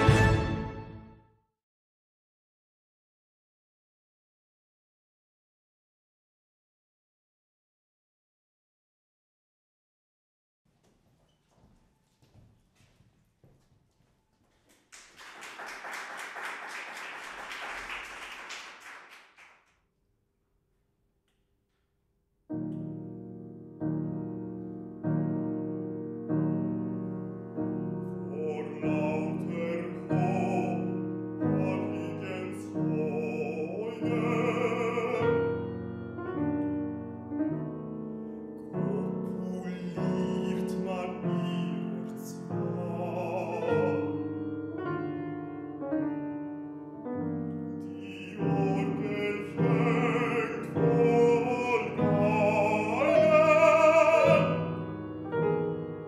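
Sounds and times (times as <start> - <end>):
grand piano: 22.5 - 56.0
baritone singing with vibrato: 28.2 - 35.7, 38.8 - 44.3, 47.8 - 55.0.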